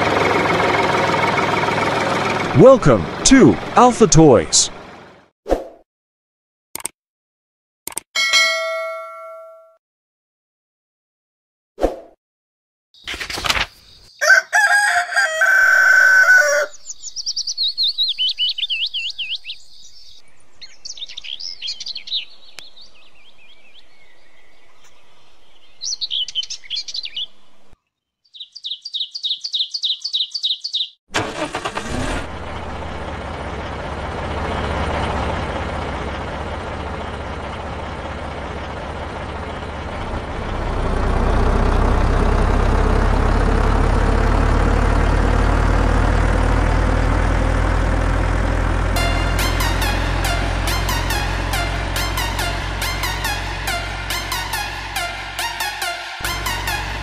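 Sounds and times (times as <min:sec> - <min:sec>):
songbirds chirping: 0:13.0 - 0:14.6, 0:16.3 - 0:31.0
rooster crowing: 0:14.2 - 0:16.8.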